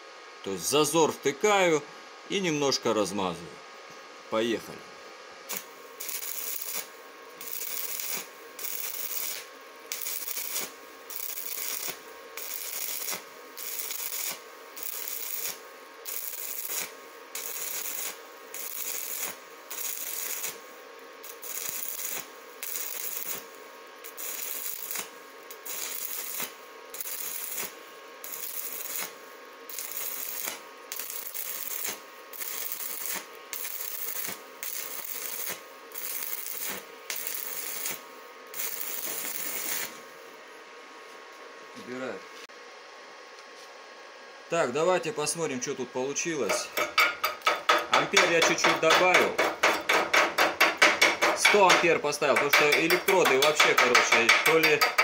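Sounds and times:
welding arc crackling and sizzling: 5.5s - 40.2s, 46.2s - 55.0s.

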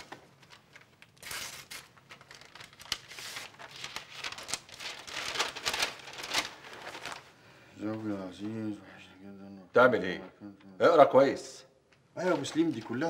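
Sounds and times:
paper rustling and crinkling: 0.0s - 8.6s, 12.2s - 13.0s.

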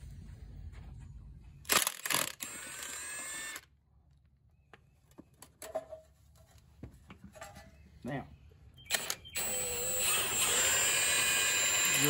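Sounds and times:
impact wrench hammering and whirring: 8.9s - 12.0s.

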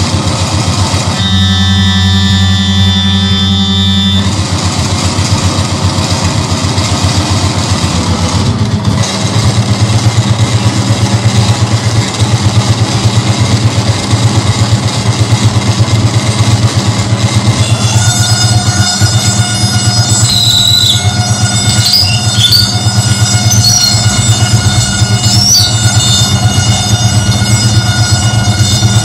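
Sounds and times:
fast low throbbing pulse: 0.0s - 29.0s
harsh electronic noise music: 7.7s - 29.0s.

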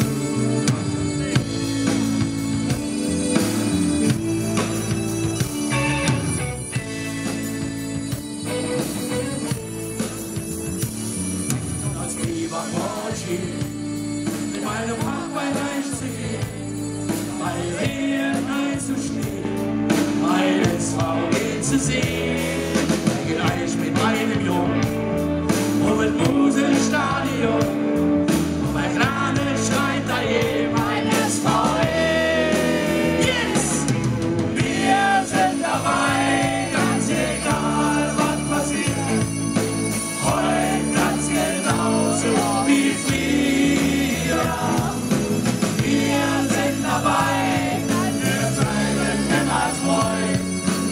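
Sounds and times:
live rock band playing: 0.0s - 50.9s
men singing together: 12.0s - 50.9s.

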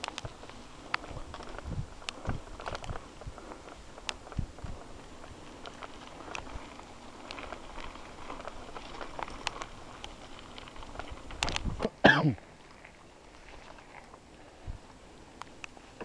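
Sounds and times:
bike heavy jolts: 0.0s - 16.0s
mountain bike rattling over trail: 0.0s - 16.0s
rider coughing: 11.8s - 12.5s.

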